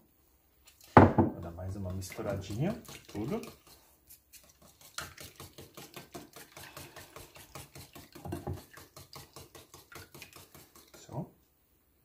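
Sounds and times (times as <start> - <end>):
hand whisk ticking against bowl: 1.7 - 11.2.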